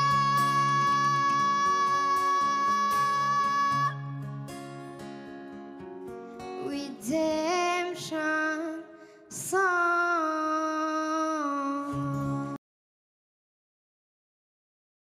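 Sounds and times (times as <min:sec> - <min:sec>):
boy singing: 0:00.0 - 0:04.1, 0:06.6 - 0:12.6
plucked acoustic guitar: 0:00.0 - 0:09.6, 0:11.6 - 0:12.6.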